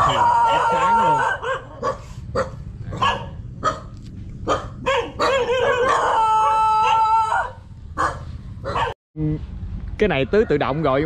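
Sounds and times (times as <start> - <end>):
dog howling: 0.0 - 1.9, 4.9 - 7.6
dog barking: 0.0 - 9.0.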